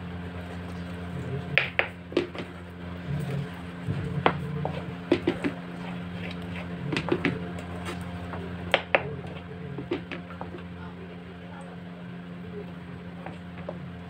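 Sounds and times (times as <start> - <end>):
steady low hum: 0.0 - 14.0
wooden spatula scraping pan: 3.9 - 8.1.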